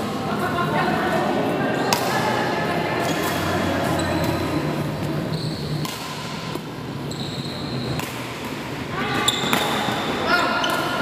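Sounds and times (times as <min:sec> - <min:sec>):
racket hitting shuttlecock: 0:01.9 - 0:02.2, 0:05.7 - 0:06.8, 0:07.8 - 0:11.0
shoes squeaking on floor: 0:03.0 - 0:05.8, 0:07.0 - 0:08.1, 0:09.2 - 0:10.9.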